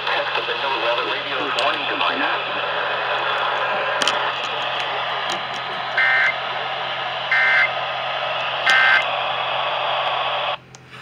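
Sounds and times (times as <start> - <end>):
radio static hiss: 0.0 - 10.6
two-tone digital data bursts: 6.0 - 6.4, 8.7 - 9.0.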